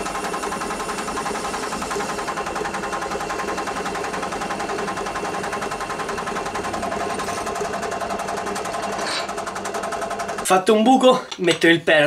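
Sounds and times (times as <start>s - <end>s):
electric drill boring a hole: 0.0s - 10.4s.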